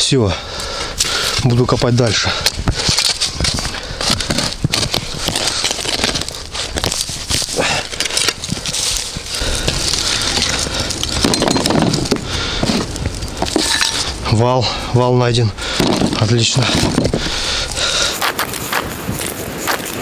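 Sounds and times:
shovel digging into earth: 18.2s - 20.0s.

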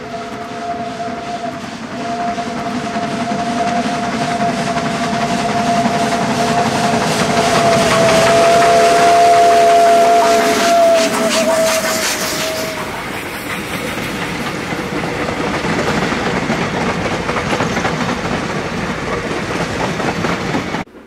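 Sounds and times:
steam locomotive chord whistle: 0.0s - 15.2s
steam and moving train noise: 0.0s - 21.0s.

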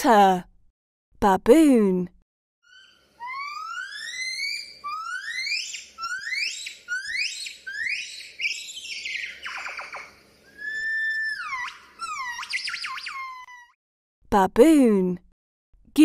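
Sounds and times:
baboon squealing: 2.6s - 13.8s
baboon long falling call: 2.7s - 13.8s.

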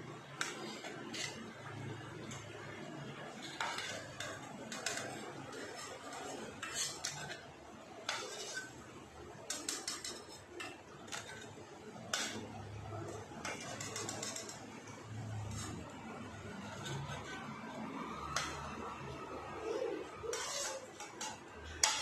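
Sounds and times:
metal tongs clinking and scraping: 3.2s - 8.8s, 9.5s - 11.5s, 12.1s - 17.4s, 20.2s - 22.0s.

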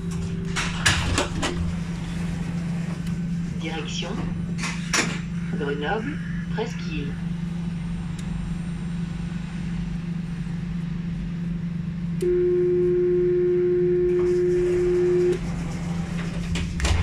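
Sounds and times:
tram electrical hum: 0.0s - 17.0s
door warning beep: 14.0s - 15.4s.

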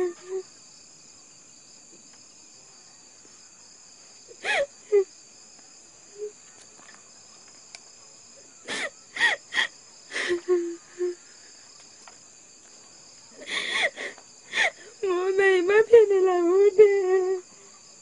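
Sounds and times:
crickets chirping: 0.0s - 18.0s
person sobbing: 4.4s - 5.1s, 8.6s - 11.3s, 13.4s - 15.1s.

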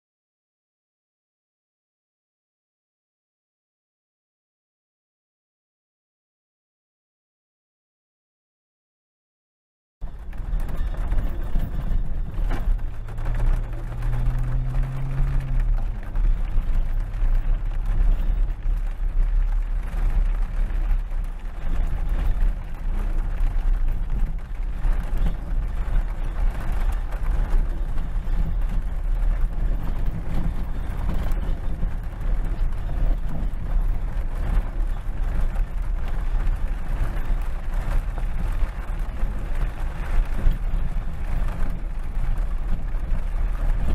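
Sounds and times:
vehicle engine rumbling: 10.0s - 43.9s.

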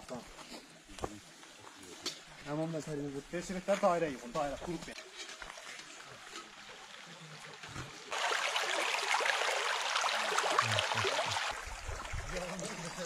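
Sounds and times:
creek water rushing and splashing: 3.4s - 13.0s.

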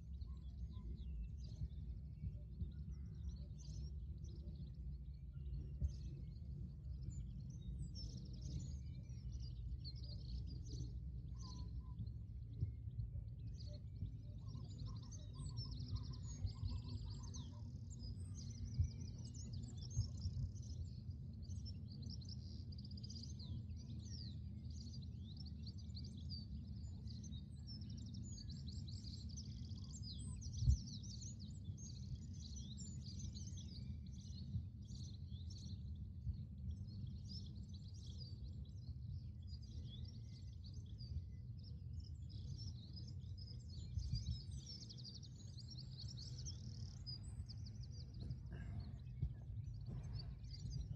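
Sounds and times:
birds chirping and singing: 42.1s - 50.9s
steady low rumble: 47.2s - 50.9s.

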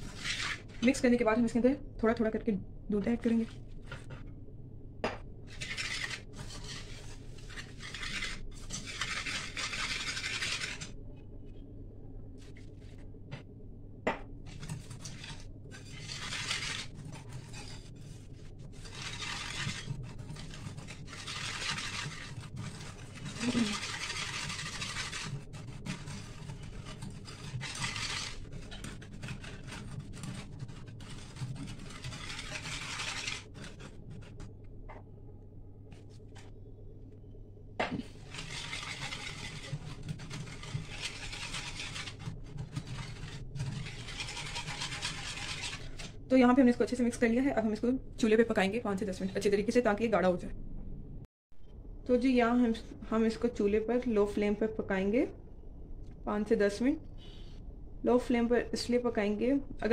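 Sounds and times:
whisk scraping a steel pan: 0.0s - 1.0s, 5.5s - 11.0s, 14.5s - 34.5s, 38.1s - 47.0s.

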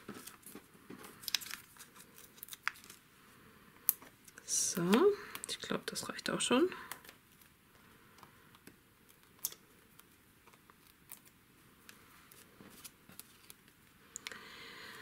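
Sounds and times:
paper card and ribbon rustling: 0.0s - 3.0s, 9.1s - 13.8s.

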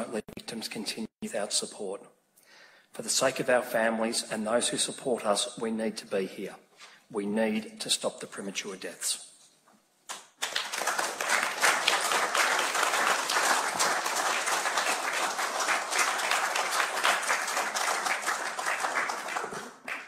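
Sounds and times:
audience applauding: 10.1s - 20.0s.

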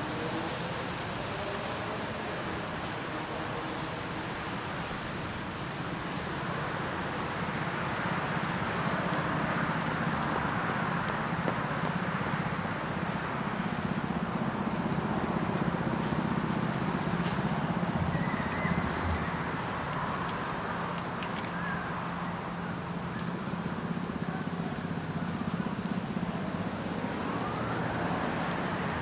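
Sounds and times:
road traffic passing: 0.0s - 29.0s.

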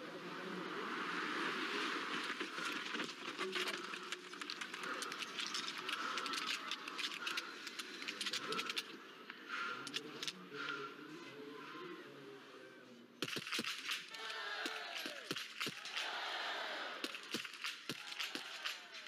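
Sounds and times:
crowd noise: 0.0s - 19.0s
rifle shots: 13.2s - 14.1s.

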